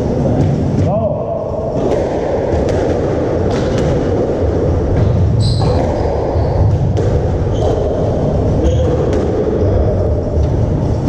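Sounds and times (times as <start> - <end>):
low hum: 0.0 - 11.0
squash ball knocking: 1.8 - 8.1
shoes squeaking on wooden floor: 5.3 - 6.5.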